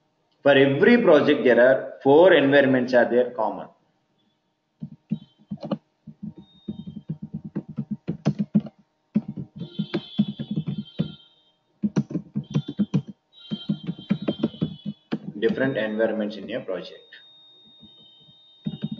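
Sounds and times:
fast typing on keyboard: 0:04.8 - 0:11.2, 0:11.8 - 0:15.8, 0:18.6 - 0:18.9.

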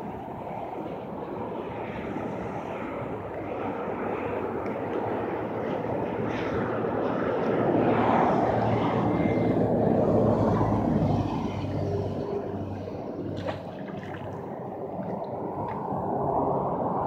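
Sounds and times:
engine passing by: 0:05.2 - 0:17.0.

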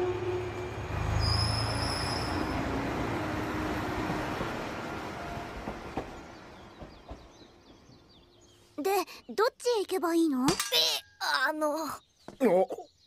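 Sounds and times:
high-pitched rail squeal: 0:00.0 - 0:03.0
train rumbling on rails: 0:00.0 - 0:08.6.

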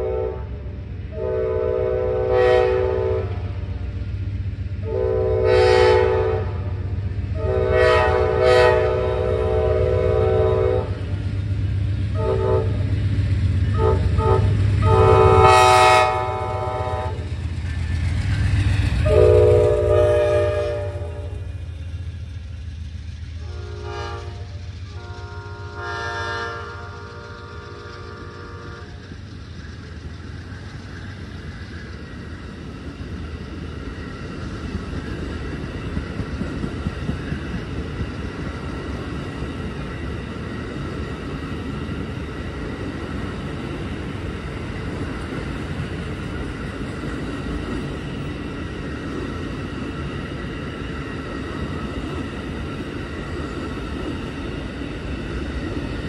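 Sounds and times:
locomotive air horn blasts: 0:00.0 - 0:03.6, 0:04.8 - 0:06.8, 0:07.4 - 0:11.0, 0:12.2 - 0:12.8, 0:13.7 - 0:17.2, 0:19.0 - 0:21.5, 0:23.4 - 0:29.0
passing train rumble: 0:00.0 - 0:56.0.

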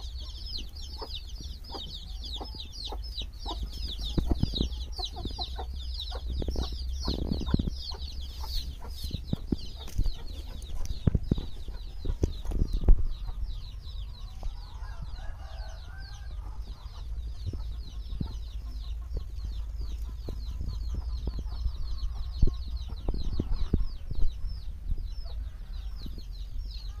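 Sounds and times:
hen clucking: 0:00.0 - 0:26.2
chicks peeping: 0:00.0 - 0:27.0.

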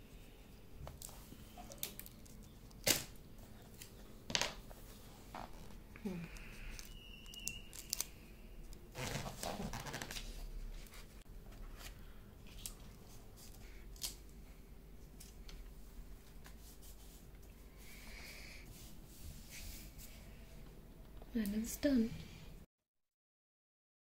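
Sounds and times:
paper and tape rustling: 0:00.8 - 0:14.2
paper crinkle: 0:05.4 - 0:08.2.

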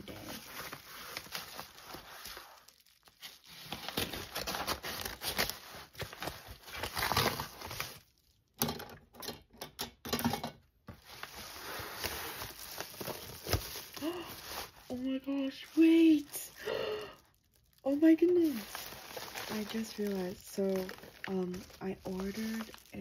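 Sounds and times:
paper mailer crinkling: 0:11.0 - 0:23.0.

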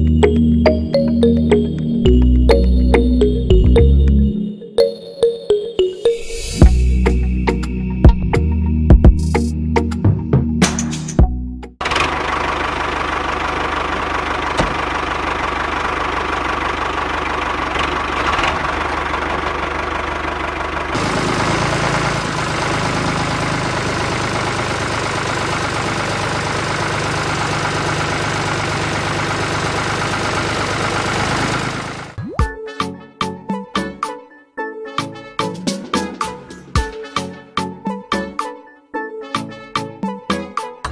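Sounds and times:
diesel tractor engine idling: 0:11.8 - 0:32.2.

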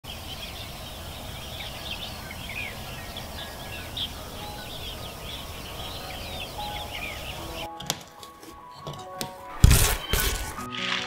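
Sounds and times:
small birds chirping and trilling: 0:00.0 - 0:07.7
low background noise: 0:00.1 - 0:09.4.

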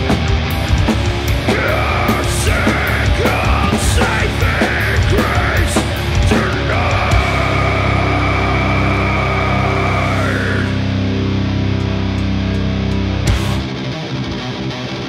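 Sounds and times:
drums with crashing cymbals: 0:00.0 - 0:08.4, 0:13.3 - 0:13.7
distorted electric guitars: 0:00.0 - 0:15.0
harsh shouted vocal: 0:01.4 - 0:11.1.

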